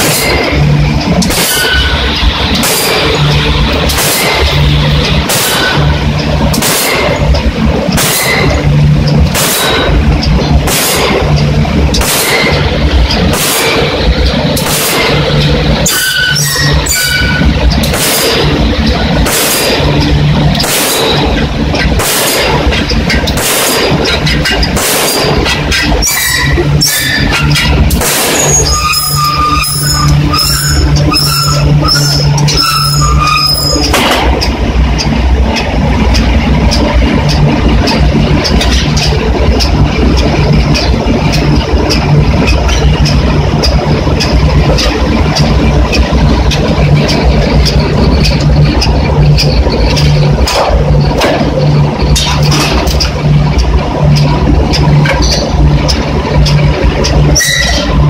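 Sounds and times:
forging machinery humming: 0:00.0 - 0:58.0
metal clanks and knocks: 0:00.0 - 0:58.0
high squeal: 0:01.4 - 0:02.2, 0:15.8 - 0:17.5, 0:26.0 - 0:27.7, 0:28.3 - 0:33.9, 0:57.3 - 0:58.0.

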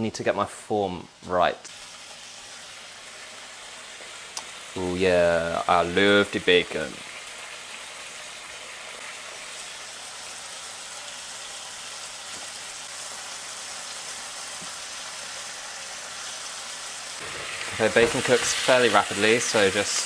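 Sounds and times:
bacon sizzling in a frying pan: 0:01.6 - 0:20.0.

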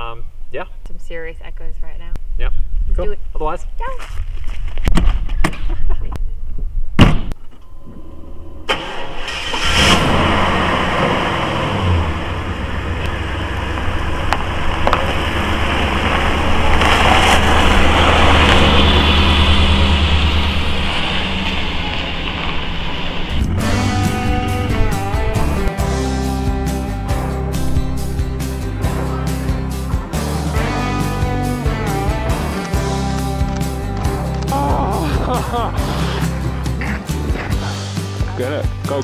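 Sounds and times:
engine starting and running: 0:07.7 - 0:37.7.

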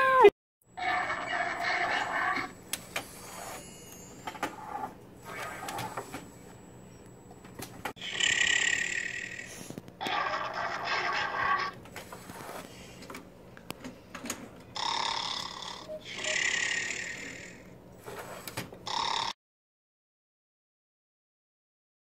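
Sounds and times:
snoring sound effect: 0:08.0 - 0:11.7, 0:14.8 - 0:19.4.

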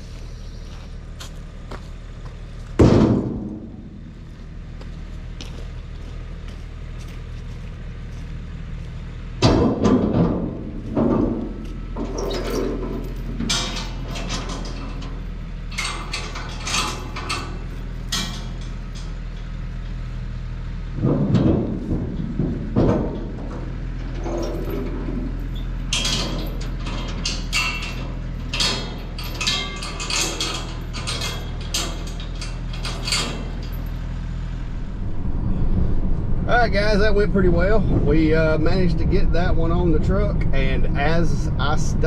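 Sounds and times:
truck engine idling: 0:00.0 - 0:42.0
metallic clanks and knocks: 0:02.8 - 0:04.1, 0:09.4 - 0:20.0, 0:20.9 - 0:41.6.

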